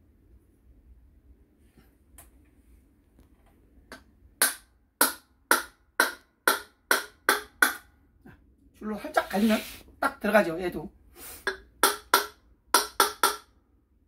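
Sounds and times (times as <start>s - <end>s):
wooden block knocking metal: 3.9s - 7.9s, 11.5s - 13.6s.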